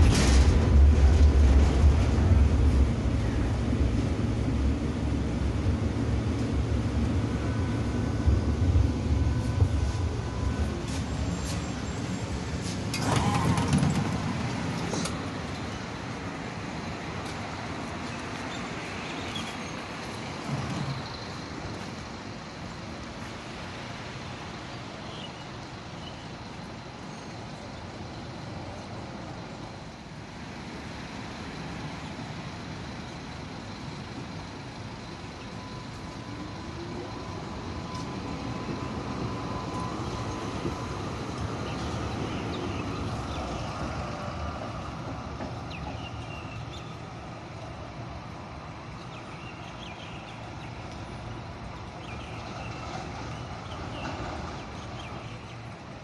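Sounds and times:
tram running noise: 0:00.0 - 0:56.0.

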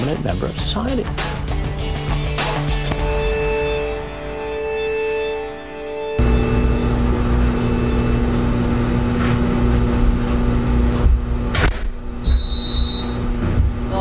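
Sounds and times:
low rumbling drone: 0:03.0 - 0:14.0
short high-pitched beep: 0:12.2 - 0:13.2.

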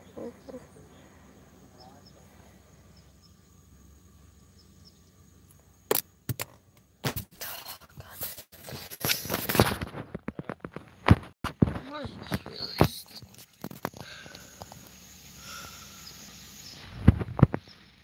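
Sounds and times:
car interior hum: 0:00.0 - 0:08.2
phone handling bumps and rubbing: 0:09.0 - 0:14.0.

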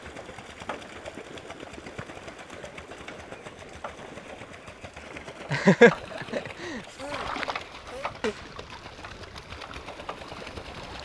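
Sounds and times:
pedal boat drivetrain clattering: 0:00.0 - 0:11.0.

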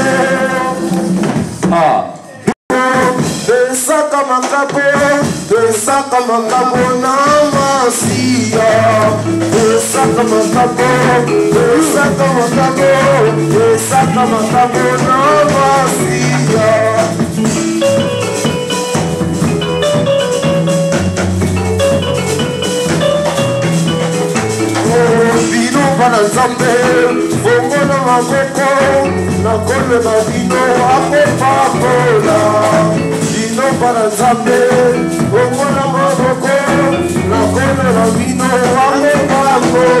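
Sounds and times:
church choir singing: 0:00.0 - 0:01.3, 0:06.7 - 0:17.2, 0:30.5 - 0:33.0
rattling percussion: 0:00.0 - 0:02.0, 0:02.7 - 0:40.0
live band accompaniment: 0:00.0 - 0:40.0
steady bass line: 0:06.8 - 0:40.0.

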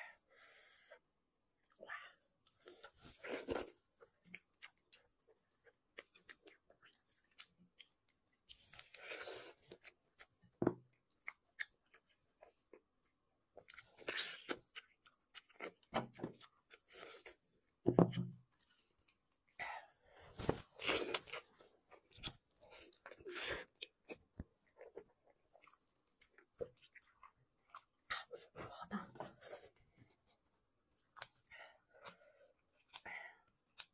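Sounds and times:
chewing and mouth sounds: 0:02.4 - 0:13.0, 0:20.6 - 0:28.6.

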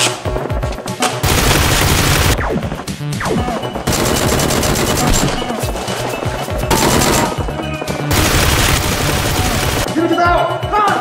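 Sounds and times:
background music: 0:00.0 - 0:11.0
automatic gunfire: 0:01.2 - 0:02.4, 0:03.9 - 0:05.4, 0:06.7 - 0:07.5, 0:08.1 - 0:09.9.

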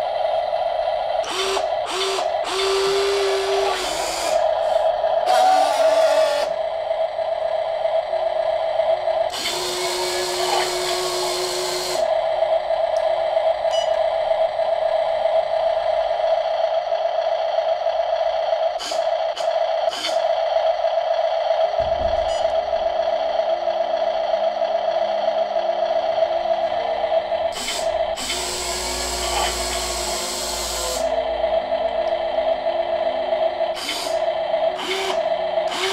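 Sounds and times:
electric motor whine: 0:01.2 - 0:06.6, 0:09.3 - 0:12.3, 0:26.6 - 0:31.3, 0:33.7 - 0:35.9.

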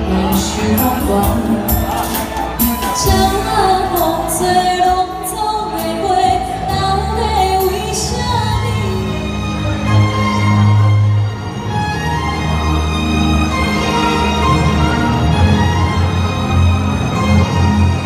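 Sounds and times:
woman singing into a microphone: 0:00.0 - 0:09.3
violin: 0:00.0 - 0:18.0.

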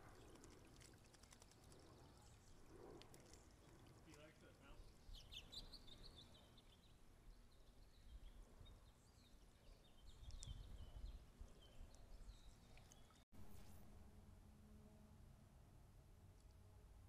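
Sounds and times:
faint birds chirping: 0:00.0 - 0:13.6.

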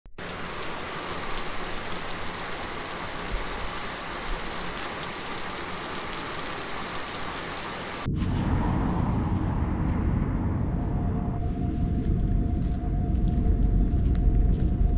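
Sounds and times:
steady rain: 0:00.2 - 0:08.1
low rumble: 0:08.0 - 0:14.9.

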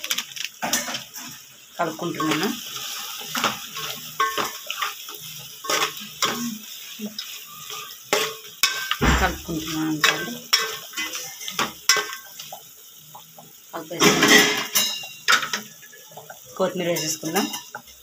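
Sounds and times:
dull thump: 0:09.0 - 0:09.7.

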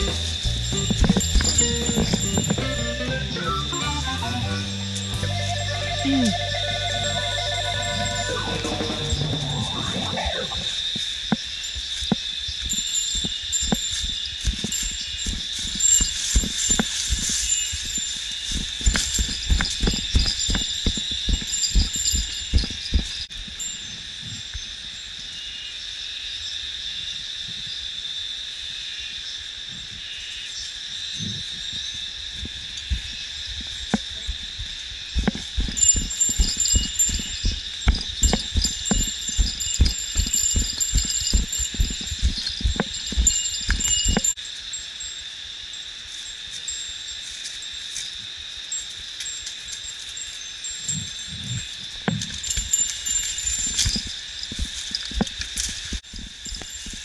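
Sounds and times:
footfalls on dirt trail: 0:00.0 - 0:04.6, 0:07.8 - 0:23.3, 0:32.4 - 0:44.4, 0:52.1 - 0:57.0
steady high-pitched drone: 0:00.0 - 0:11.1
bear bell jingling: 0:00.0 - 0:11.8, 0:12.6 - 0:24.0, 0:34.0 - 0:45.2, 0:48.8 - 0:57.0
insects singing: 0:00.0 - 0:24.6, 0:30.0 - 0:57.0.

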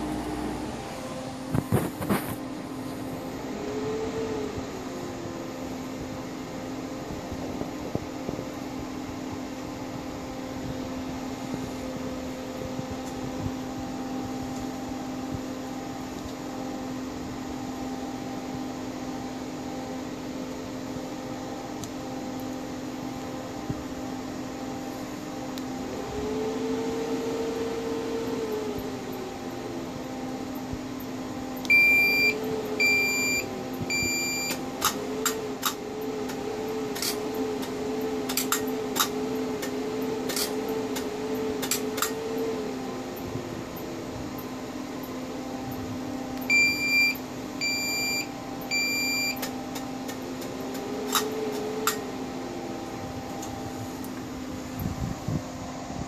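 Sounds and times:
machine hum: 0:00.0 - 0:56.0
rising and falling whine: 0:00.0 - 0:56.0
short beeps: 0:31.7 - 0:34.6, 0:46.5 - 0:49.4.

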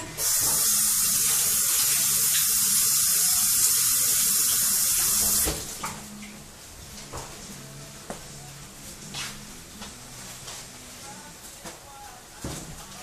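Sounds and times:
faucet running water: 0:00.0 - 0:06.5.

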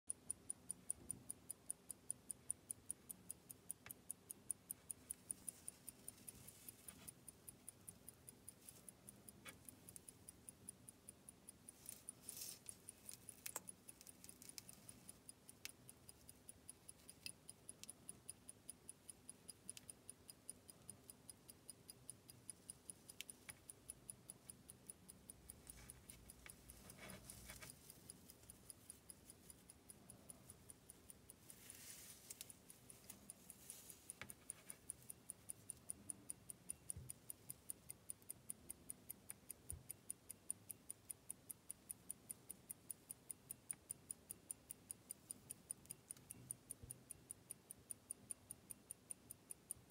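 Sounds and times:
watch ticking quickly: 0:00.1 - 0:49.9
soft rustles of handling: 0:05.1 - 0:07.9, 0:11.7 - 0:15.3, 0:25.6 - 0:29.8, 0:30.4 - 0:35.7.

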